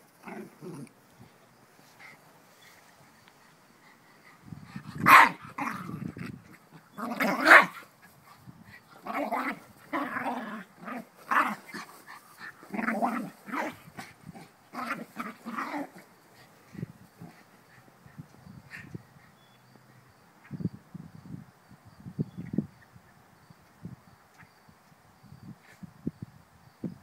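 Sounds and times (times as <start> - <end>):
dog growling and barking: 0.2 - 0.9, 4.9 - 6.4, 7.0 - 7.8, 9.0 - 16.1.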